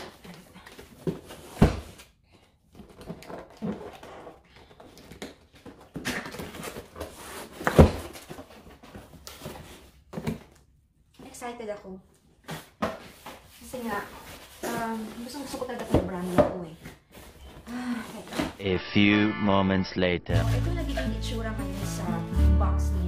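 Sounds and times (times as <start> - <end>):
cardboard and tape rustling: 2.7 - 10.6, 12.4 - 18.6.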